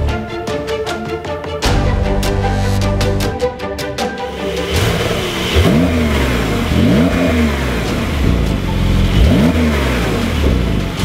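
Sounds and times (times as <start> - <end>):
car engine accelerating with gear changes: 4.7 - 11.0.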